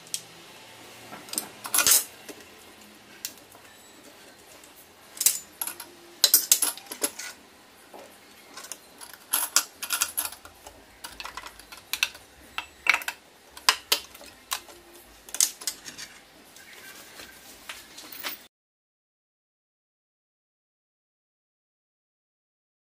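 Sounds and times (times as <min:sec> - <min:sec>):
metal and plastic parts clinking: 0:01.3 - 0:02.4, 0:05.2 - 0:07.4, 0:08.5 - 0:16.2.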